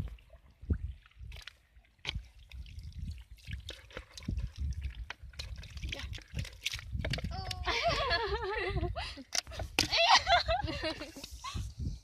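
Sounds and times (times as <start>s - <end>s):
bowl scooping muddy water: 0.0s - 7.3s
small water splashes: 0.0s - 7.3s.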